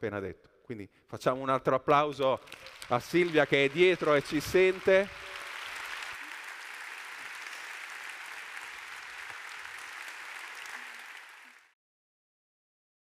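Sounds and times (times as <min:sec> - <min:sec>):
audience applauding: 0:02.3 - 0:11.8.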